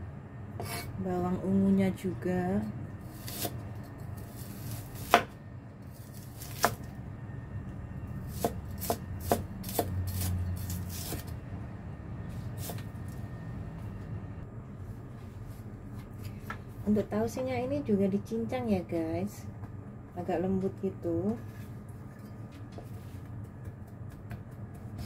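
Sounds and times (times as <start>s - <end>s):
cleaver chopping on wooden board: 8.3s - 10.3s.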